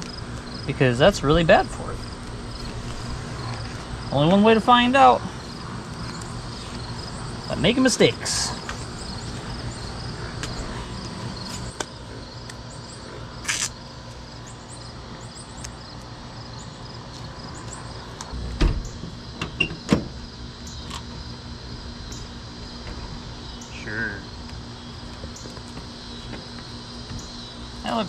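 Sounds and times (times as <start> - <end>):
crickets chirping: 0.0 - 28.0
car hatch shutting with thud: 18.4 - 20.2.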